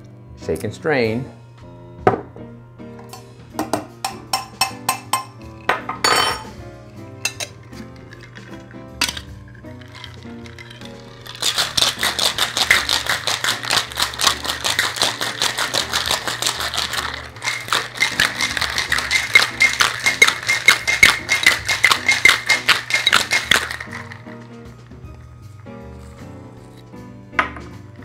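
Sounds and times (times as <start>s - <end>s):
ice rattling in cocktail shaker: 7.2s - 24.9s.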